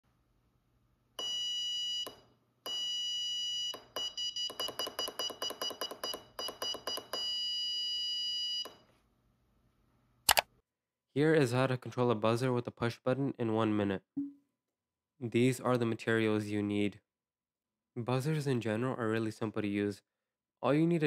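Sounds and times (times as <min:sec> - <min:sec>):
buzzer beeps: 0:01.2 - 0:08.7.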